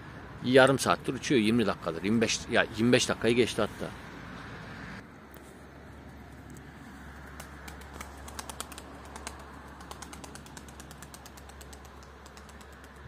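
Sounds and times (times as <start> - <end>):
rapid sharp clicks: 7.3 - 13.0.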